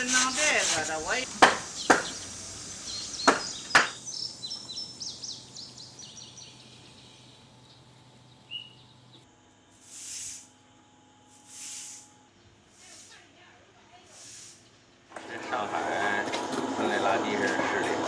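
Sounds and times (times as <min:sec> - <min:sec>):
broom sweeping pavement: 0:00.0 - 0:03.7, 0:09.7 - 0:10.6, 0:11.3 - 0:14.8
knocks on wood: 0:01.4 - 0:02.2, 0:03.2 - 0:04.0
high bird chirps: 0:01.7 - 0:09.2.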